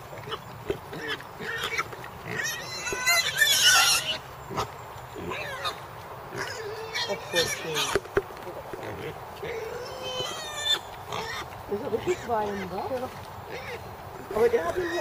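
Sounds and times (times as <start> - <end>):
boar squealing: 0.2 - 5.8, 6.4 - 8.0, 8.9 - 12.8, 14.5 - 15.0.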